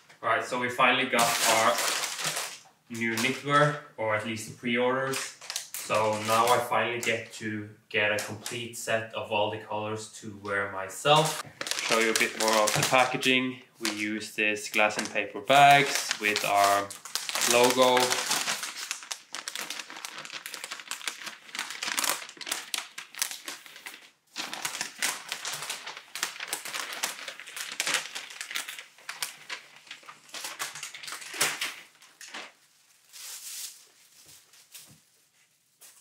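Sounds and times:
paper bag crinkling: 1.2s - 3.5s, 11.2s - 36.0s.

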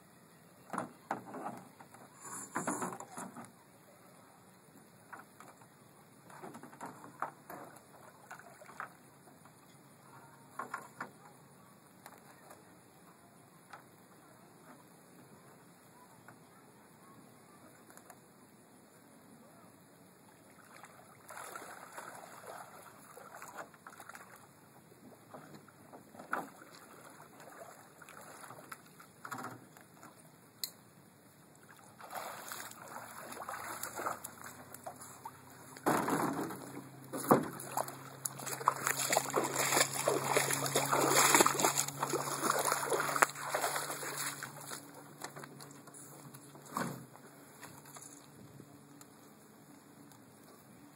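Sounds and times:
water splashing around canoe: 6.3s - 9.0s, 20.5s - 24.5s, 25.1s - 30.2s, 31.6s - 45.8s.

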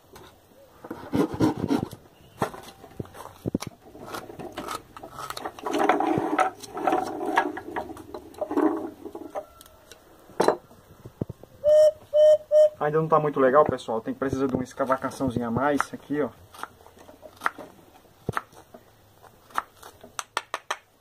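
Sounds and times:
knife scraping wood: 0.2s - 9.1s.

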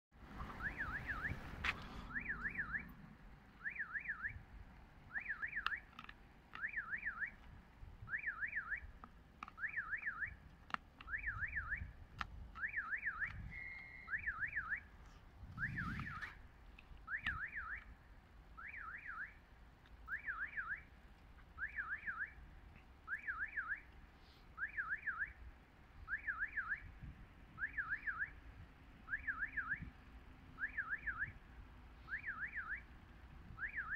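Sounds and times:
level crossing warbling alarm: 0.4s - 4.4s, 5.1s - 12.0s, 12.6s - 14.9s, 15.5s - 16.4s.

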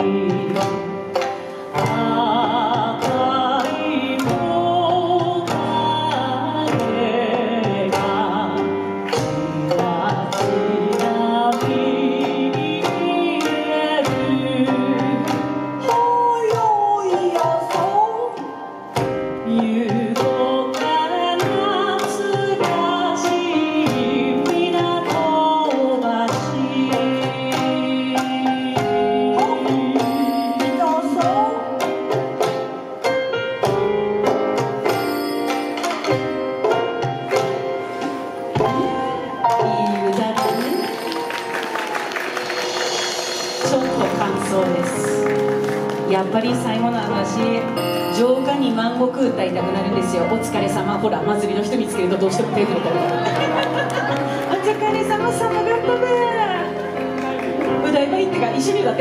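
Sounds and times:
woman singing with vibrato: 0.0s - 18.7s, 19.4s - 32.0s, 38.6s - 56.9s, 57.6s - 59.0s
backing track of strings and drums: 0.0s - 59.0s.

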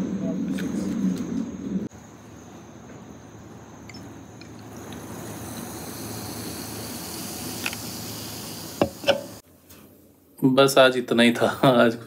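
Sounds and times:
soda pouring and fizzing: 4.4s - 9.4s.

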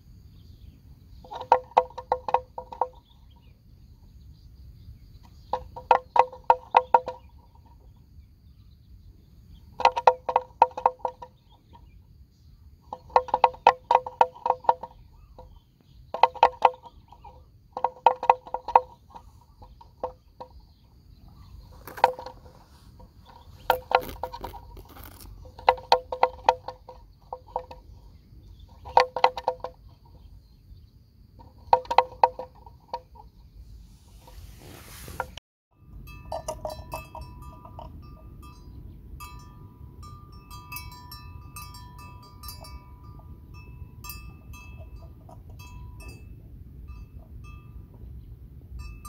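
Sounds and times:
clanking bell: 35.7s - 48.0s, 48.8s - 49.0s.

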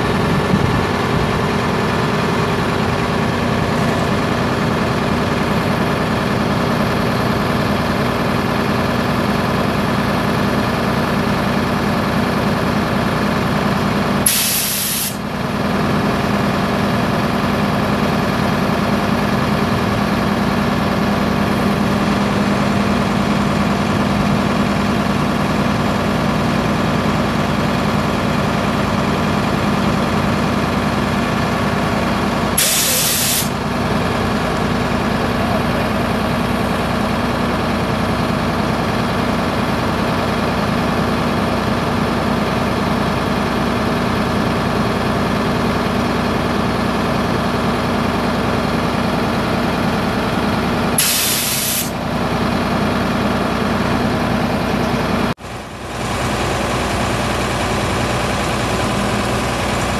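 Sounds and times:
diesel engine running: 0.0s - 59.9s
compressed air hiss: 14.3s - 15.2s, 32.6s - 33.5s, 51.0s - 51.9s.

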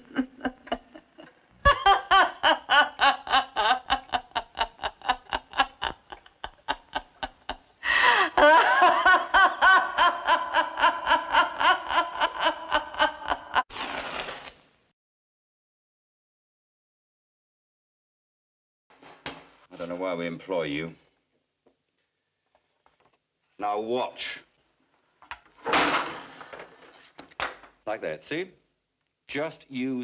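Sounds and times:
person laughing hysterically: 0.0s - 13.7s
breathy gasp: 7.8s - 8.4s.

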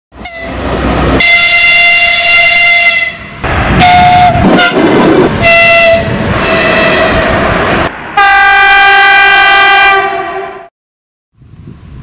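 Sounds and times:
moving train rumble: 0.1s - 10.7s
train horn blasts: 0.2s - 0.6s, 1.2s - 7.3s, 8.2s - 10.7s.

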